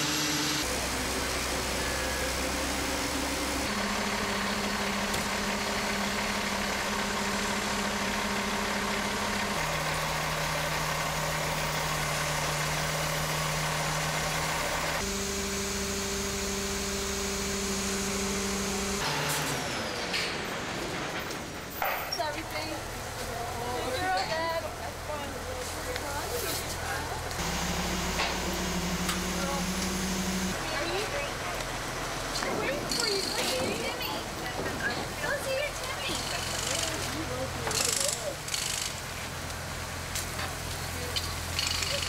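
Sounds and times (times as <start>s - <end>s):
heavy diesel engines running: 0.0s - 42.0s.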